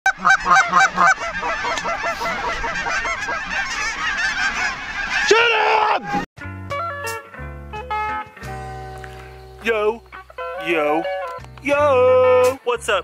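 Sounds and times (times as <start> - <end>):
geese honking: 0.1 - 6.2, 9.1 - 11.4
person shouting: 5.3 - 6.2.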